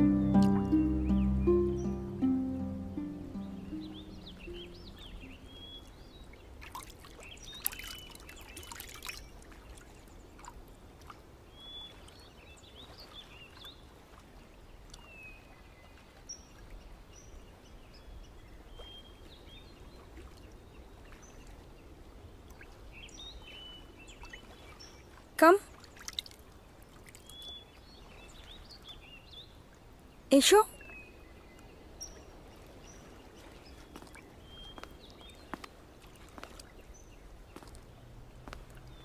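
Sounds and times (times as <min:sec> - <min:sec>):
river water lapping on stone steps: 0:02.9 - 0:39.0
small bird chirps: 0:03.2 - 0:06.3.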